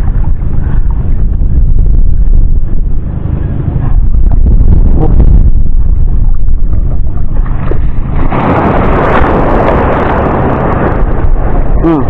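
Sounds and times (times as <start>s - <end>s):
wave of seawater washing in: 0.0s - 12.0s
wind buffeting microphone: 0.0s - 12.0s.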